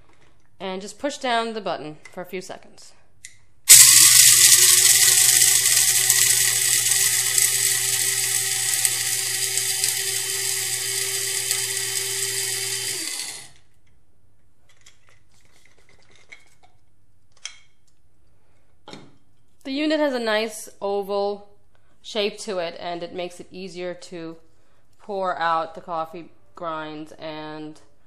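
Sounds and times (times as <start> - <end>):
electric coffee grinder running: 3.7 - 13.6.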